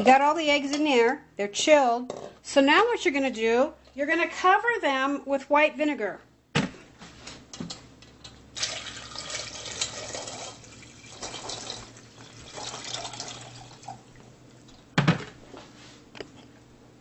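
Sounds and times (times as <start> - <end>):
liquid pouring and splashing: 8.6 - 14.8.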